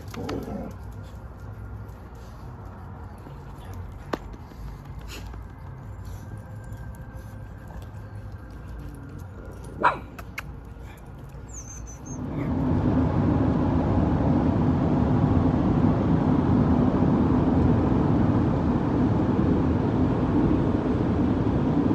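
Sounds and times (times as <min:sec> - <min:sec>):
car road noise: 0:00.0 - 0:21.9
dog barking: 0:09.8 - 0:10.1.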